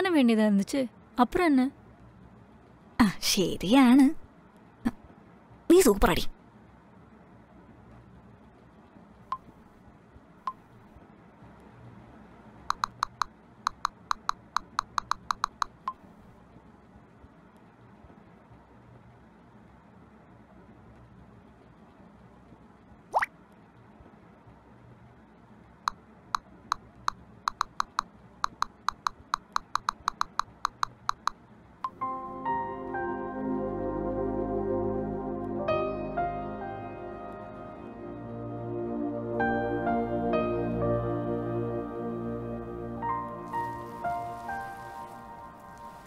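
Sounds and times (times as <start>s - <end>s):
phone keyboard tap clicks: 12.7s - 16.0s, 26.7s - 32.0s
soft ambient music: 29.8s - 46.0s.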